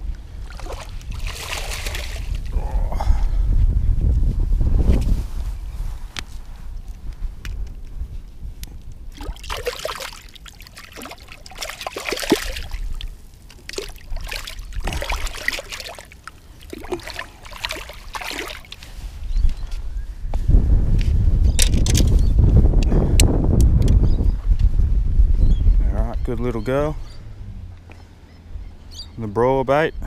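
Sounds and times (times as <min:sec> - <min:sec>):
water splashing against concrete steps: 0:00.4 - 0:02.5, 0:09.1 - 0:18.9
low rumble: 0:01.9 - 0:09.4, 0:19.1 - 0:28.9.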